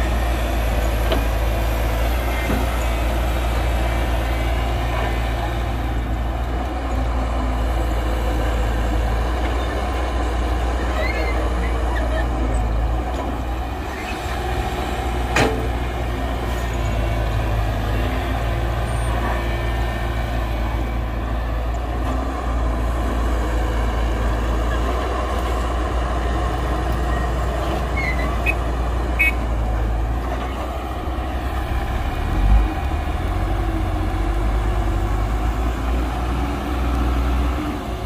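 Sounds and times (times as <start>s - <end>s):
diesel excavator engine droning: 0.0s - 38.0s
short high squeaks: 27.9s - 28.6s.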